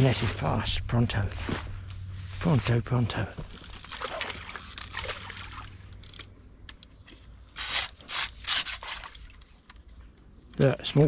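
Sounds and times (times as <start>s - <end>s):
rustling vegetation: 0.0s - 9.7s.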